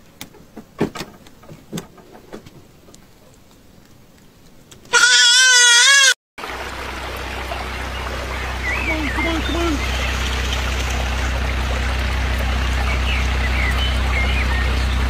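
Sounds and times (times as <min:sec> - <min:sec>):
goat kid bleating: 0:04.9 - 0:06.2
stream water rushing: 0:06.4 - 0:15.0.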